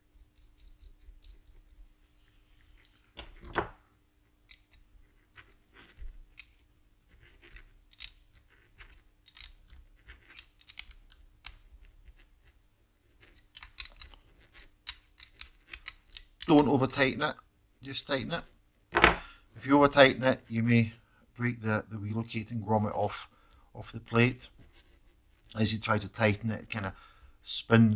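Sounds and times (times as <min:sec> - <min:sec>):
small metal clicks and taps: 0:04.4 - 0:04.9, 0:07.5 - 0:08.2, 0:08.8 - 0:11.6, 0:13.3 - 0:16.6.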